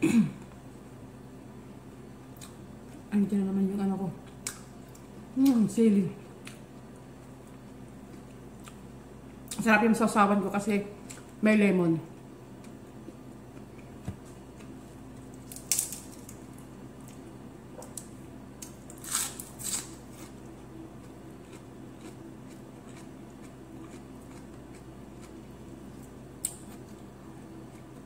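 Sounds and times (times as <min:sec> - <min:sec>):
person chewing: 0:02.3 - 0:03.0, 0:06.4 - 0:09.6, 0:12.5 - 0:16.4, 0:17.0 - 0:28.0.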